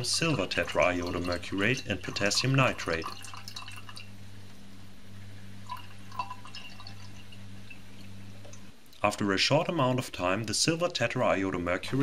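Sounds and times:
magnetic stirrer humming: 0:00.0 - 0:08.8
faint liquid drips: 0:00.0 - 0:09.1.

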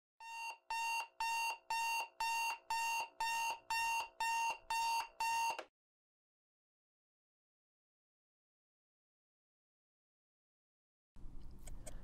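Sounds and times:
electronic alarm beeping: 0:00.2 - 0:05.6.

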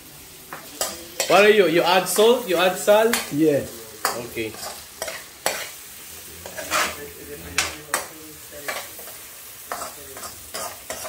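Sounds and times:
food sizzling in oil: 0:00.0 - 0:11.0
metal spoon scraping frying pan: 0:04.0 - 0:11.0.

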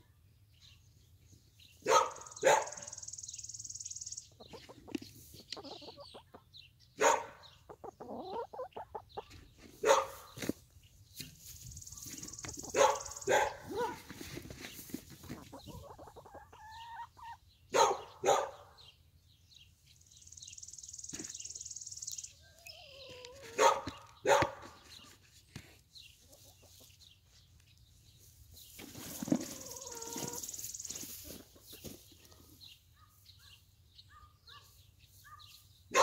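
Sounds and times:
hens clucking: 0:04.3 - 0:06.5, 0:07.5 - 0:10.6, 0:11.4 - 0:17.5, 0:22.5 - 0:24.1, 0:26.1 - 0:27.0, 0:28.7 - 0:32.6.

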